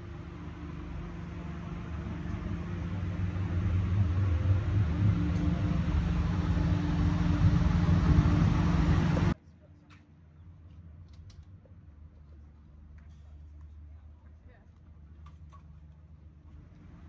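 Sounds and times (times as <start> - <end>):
motor humming: 0.0 - 9.4.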